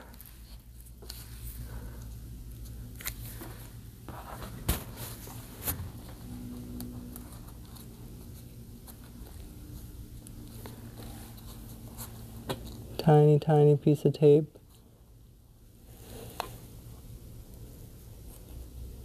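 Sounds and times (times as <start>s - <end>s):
tape rustling and scraping: 0.0s - 13.0s
steady low hum: 0.0s - 19.0s.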